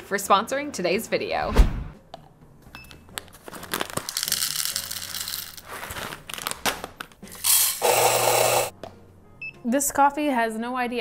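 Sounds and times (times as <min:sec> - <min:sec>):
coffee beans rattling into cup: 0:03.8 - 0:06.1, 0:07.3 - 0:08.7
coffee grinder running: 0:07.4 - 0:08.7.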